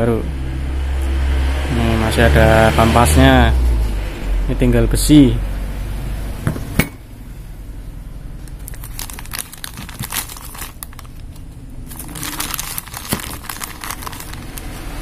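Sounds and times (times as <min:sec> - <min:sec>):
plastic packaging crinkling: 0:08.4 - 0:15.0.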